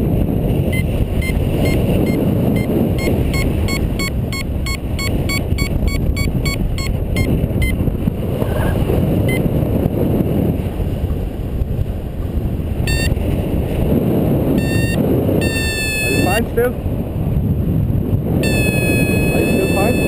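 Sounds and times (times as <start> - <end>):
wind buffeting microphone: 0.0 - 20.0
variometer beeping: 0.6 - 7.9, 9.2 - 9.5, 12.8 - 13.2, 14.6 - 16.5, 18.4 - 20.0.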